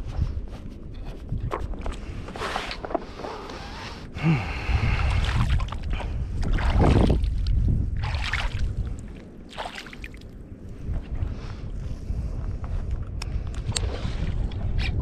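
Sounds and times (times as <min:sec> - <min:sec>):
wind on microphone: 0:00.0 - 0:15.0
water sloshing and splashing: 0:04.9 - 0:10.4, 0:13.7 - 0:14.8.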